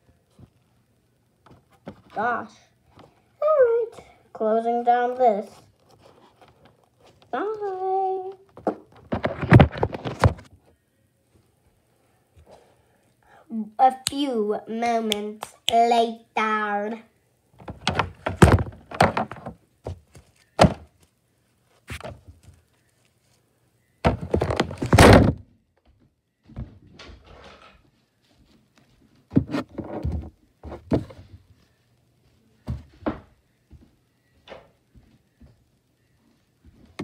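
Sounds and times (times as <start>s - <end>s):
objects being handled: 17.6s - 21.2s.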